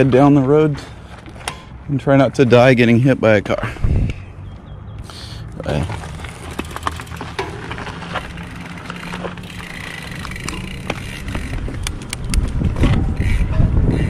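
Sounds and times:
bicycle clicks and rattles: 0:00.0 - 0:01.8, 0:05.6 - 0:14.0
road and wind rumble: 0:00.0 - 0:14.0.

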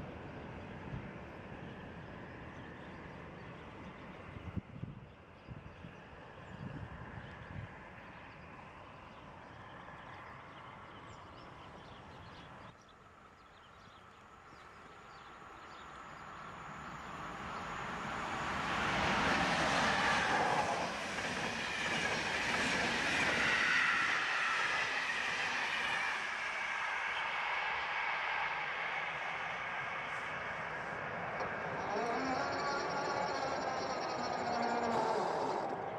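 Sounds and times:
passenger train passing: 0:00.0 - 0:04.5, 0:14.1 - 0:35.9.

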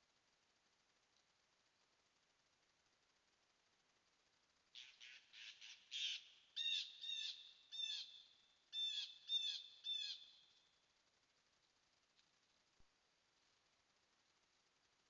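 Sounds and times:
bird calls: 0:04.8 - 0:08.2, 0:08.8 - 0:10.5.

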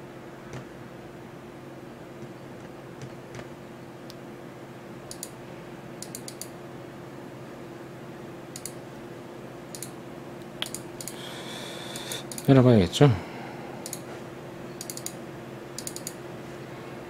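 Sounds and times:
steady low hum: 0:00.0 - 0:17.0
mouse and keyboard clicking: 0:14.8 - 0:15.2, 0:15.8 - 0:16.2.

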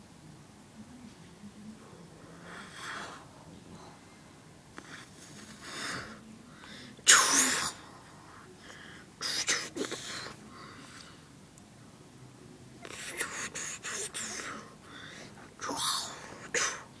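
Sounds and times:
person sneeze-like vocal burst: 0:07.1 - 0:07.8.

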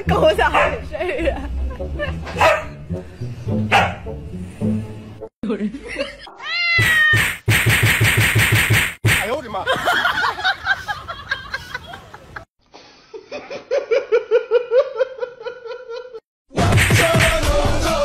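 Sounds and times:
background music with a beat: 0:06.8 - 0:09.2, 0:16.5 - 0:18.0
loud human laughter: 0:09.6 - 0:16.2.

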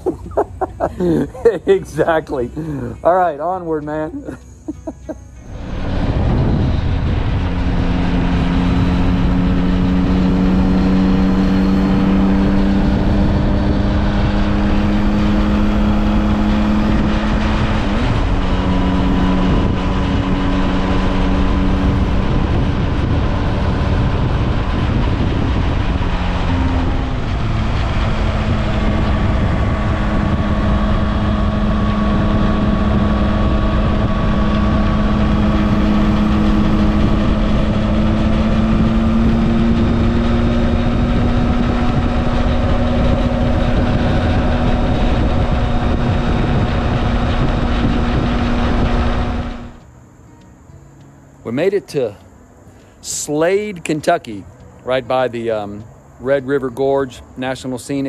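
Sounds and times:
motorcycle engine droning: 0:00.0 - 0:58.0
wind rushing over microphone: 0:05.5 - 0:49.9.

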